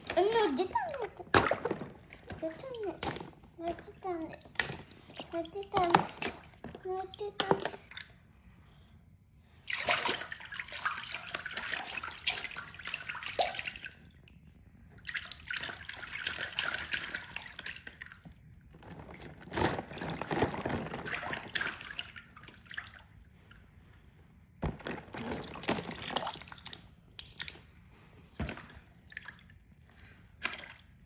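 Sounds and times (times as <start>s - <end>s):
water splashing and dripping: 9.7s - 14.4s, 15.0s - 18.4s, 20.5s - 23.2s, 30.4s - 31.0s.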